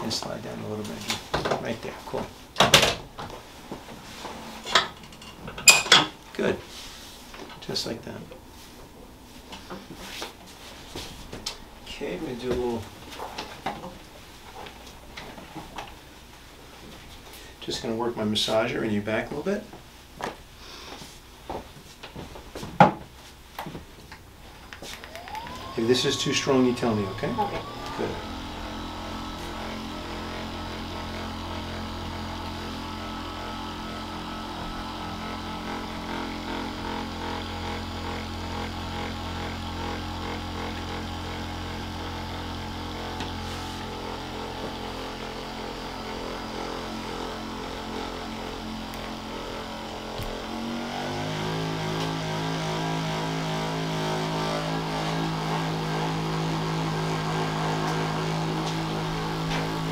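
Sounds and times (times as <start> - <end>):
massage gun motor hum: 24.8 - 59.9.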